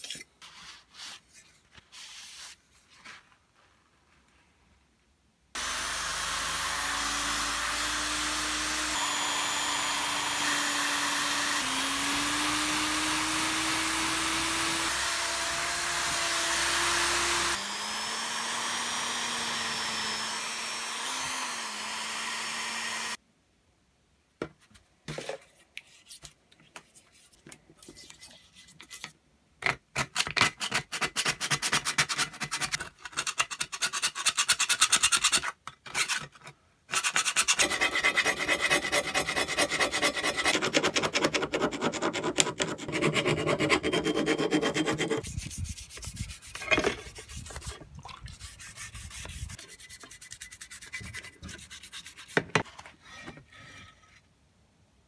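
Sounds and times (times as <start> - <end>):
power drill running: 5.6 - 23.2.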